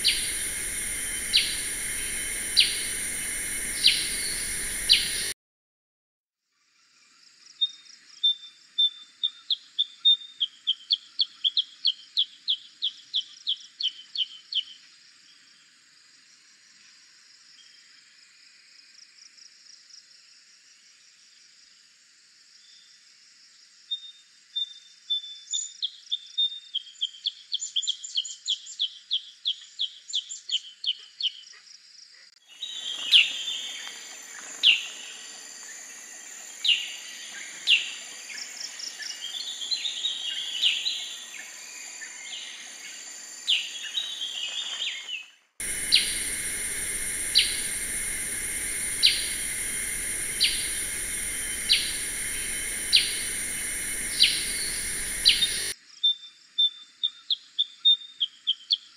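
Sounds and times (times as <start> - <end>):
bird chirping and whistling: 0.0 - 5.3, 45.6 - 55.8
steady high buzz: 0.0 - 5.4, 45.6 - 55.8.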